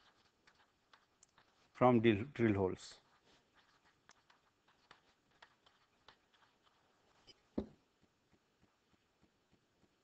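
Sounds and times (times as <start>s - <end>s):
pen writing on paper: 0.0s - 1.8s, 3.0s - 7.4s.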